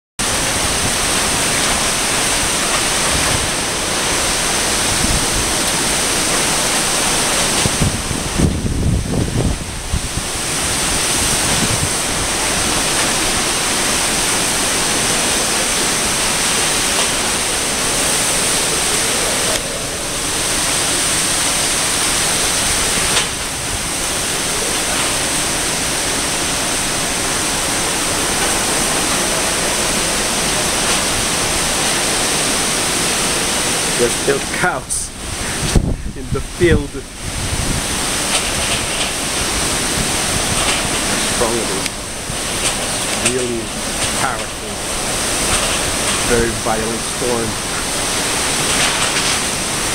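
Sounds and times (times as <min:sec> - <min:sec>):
wind and heavy rain: 0:00.2 - 0:49.9
wind gusts buffeting microphone: 0:00.2 - 0:49.9.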